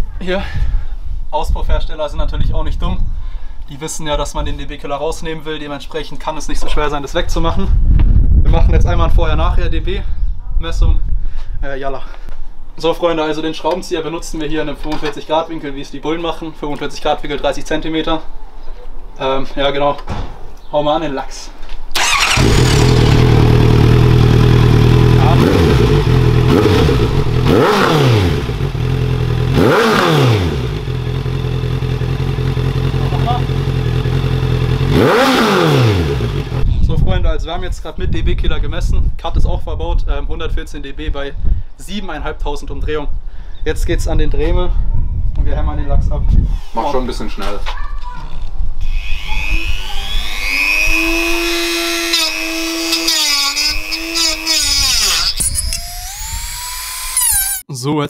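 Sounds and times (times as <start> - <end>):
motorcycle engine idling: 22.0 - 27.5, 30.7 - 35.0
motorcycle engine revving: 22.0 - 36.8, 48.8 - 57.6
rotary tool whining: 46.4 - 47.3, 48.3 - 57.6.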